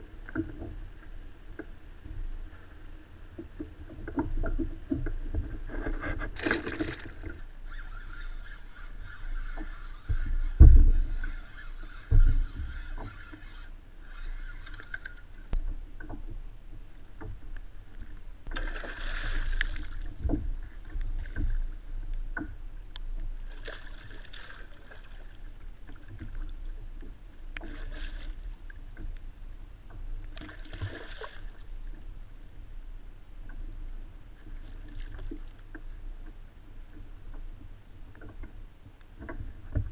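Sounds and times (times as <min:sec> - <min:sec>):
water splashing against kayak hull: 0:03.4 - 0:16.4, 0:17.1 - 0:21.8
wind rumble on microphone: 0:08.7 - 0:14.0, 0:31.6 - 0:39.9.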